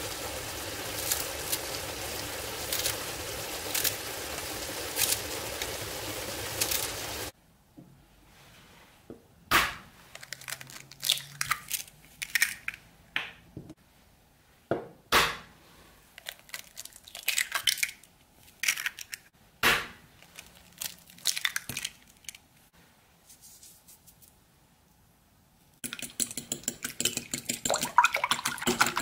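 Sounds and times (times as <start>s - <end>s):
eggshell crackling: 0.0s - 7.3s, 10.1s - 12.8s, 16.2s - 19.3s, 20.2s - 22.5s, 25.8s - 29.0s
egg tapping: 25.8s - 29.0s.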